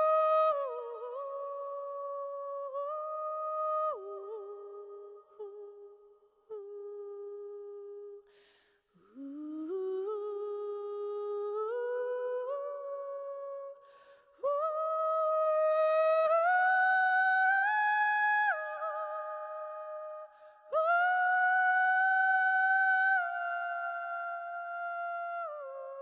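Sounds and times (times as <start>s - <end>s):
person breathing: 8.2s - 9.1s, 13.8s - 14.4s.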